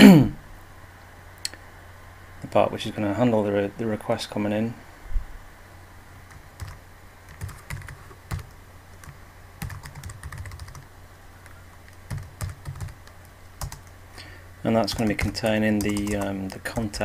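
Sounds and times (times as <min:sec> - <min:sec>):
low steady hum: 0:00.0 - 0:17.0
typing on a computer keyboard: 0:06.3 - 0:10.9, 0:11.9 - 0:13.9, 0:14.9 - 0:17.0.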